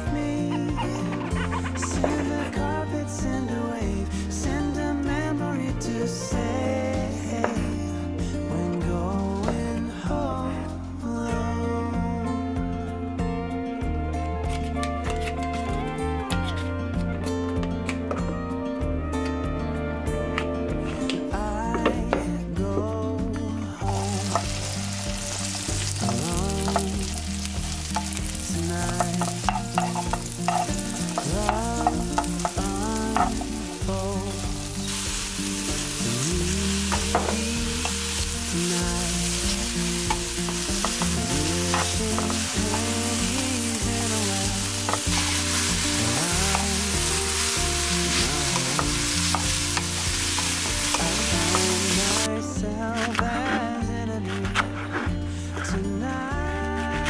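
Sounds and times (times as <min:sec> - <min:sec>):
mushrooms sizzling in a pan: 0:23.8 - 0:52.3
wooden spatula stirring: 0:23.9 - 0:33.8, 0:34.9 - 0:52.3.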